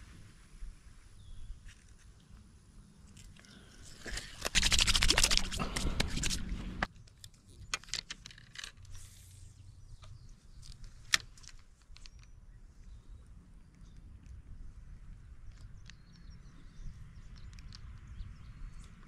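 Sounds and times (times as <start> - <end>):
hands splashing in water: 4.0 - 6.5.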